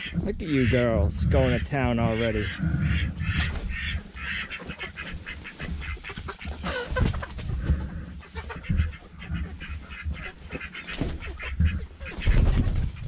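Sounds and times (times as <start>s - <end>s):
chickens clucking: 0.0s - 13.0s
low rumble: 1.0s - 4.3s.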